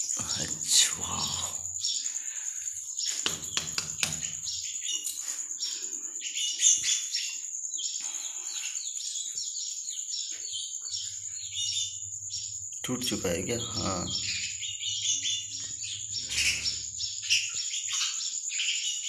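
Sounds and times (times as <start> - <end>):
small birds chirping: 0.0 - 19.0
sharp knocks: 3.2 - 4.4.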